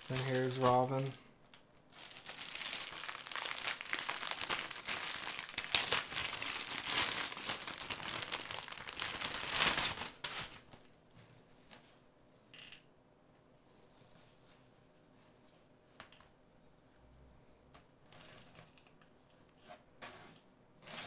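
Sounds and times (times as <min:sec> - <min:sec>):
packaging crinkling and tearing: 0:00.0 - 0:00.8, 0:01.9 - 0:10.8.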